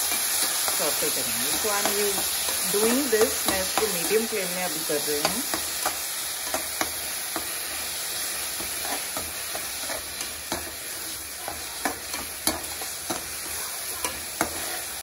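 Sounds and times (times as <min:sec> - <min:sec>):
vegetables sizzling in oil: 0:00.0 - 0:15.0
metal spoon scraping pan: 0:08.2 - 0:15.0.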